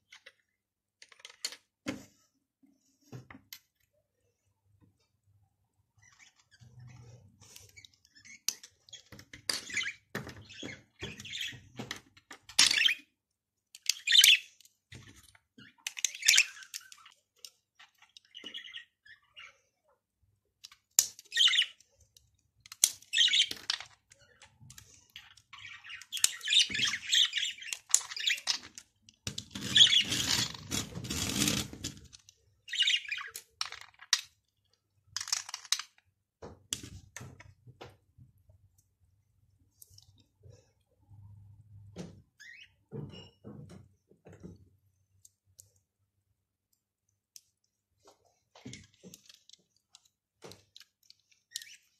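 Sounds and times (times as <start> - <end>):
plastic pieces clicking together: 22.1 - 25.4, 35.1 - 36.0
scraping and rubbing of plastic: 27.8 - 32.3.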